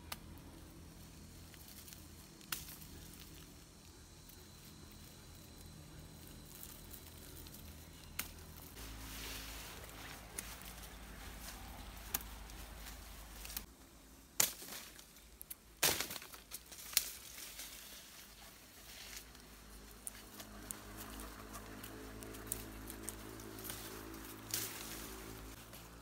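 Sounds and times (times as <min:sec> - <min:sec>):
dry pods crackling and rustling: 0:00.0 - 0:26.0
sharp snaps of stems: 0:01.5 - 0:03.5, 0:07.4 - 0:08.7, 0:10.3 - 0:13.7, 0:14.3 - 0:17.4, 0:19.2 - 0:25.8.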